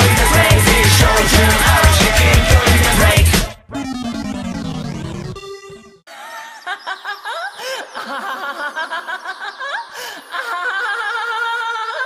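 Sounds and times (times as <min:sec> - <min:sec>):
electronic music: 0:00.0 - 0:06.1
snickering laughter: 0:06.1 - 0:12.0.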